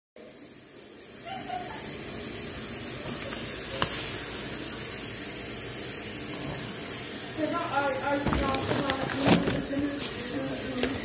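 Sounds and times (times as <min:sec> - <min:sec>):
steady hiss: 0:00.2 - 0:11.0.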